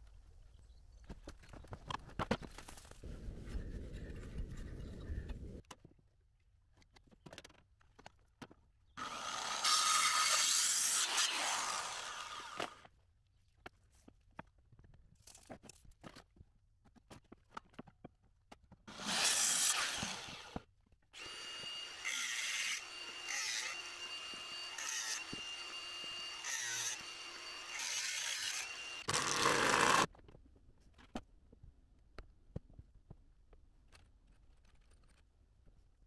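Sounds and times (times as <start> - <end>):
power saw cutting timber: 9.0 - 12.8, 18.9 - 20.6, 21.2 - 30.1
power tool high whine: 9.0 - 12.8, 21.2 - 30.1.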